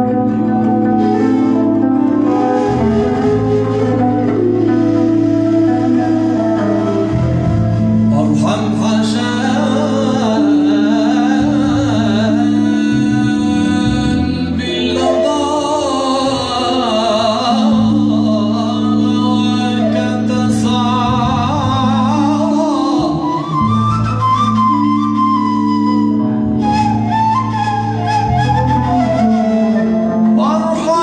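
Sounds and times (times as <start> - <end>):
small band playing: 0.0 - 31.0
man singing into a microphone: 8.0 - 25.0, 28.8 - 31.0.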